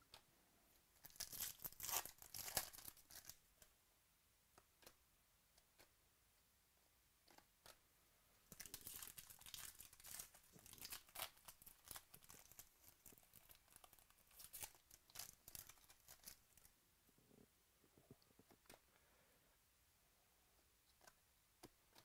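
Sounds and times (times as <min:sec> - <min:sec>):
foil wrapper tearing and crinkling: 0:01.0 - 0:03.3, 0:08.5 - 0:16.4.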